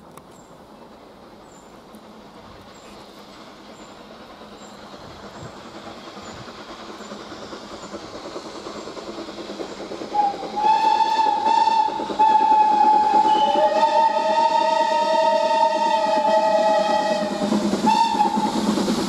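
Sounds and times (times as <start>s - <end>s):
steam locomotive running: 0.0s - 19.0s
steam locomotive whistle: 10.1s - 18.7s.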